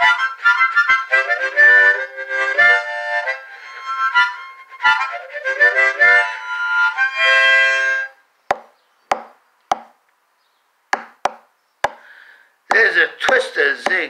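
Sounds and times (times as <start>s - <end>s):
harmonica chords: 0.0s - 8.2s
short sharp knocks: 8.5s - 10.0s, 11.0s - 12.0s, 12.7s - 14.0s.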